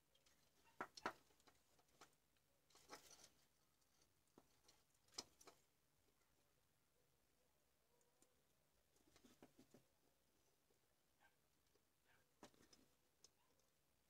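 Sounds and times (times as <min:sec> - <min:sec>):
hands rustling wires: 0:00.0 - 0:06.2.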